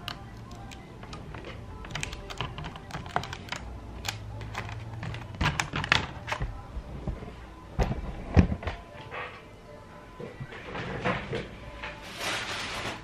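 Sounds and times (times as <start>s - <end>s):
keyboard keys clattering: 0.0s - 6.6s.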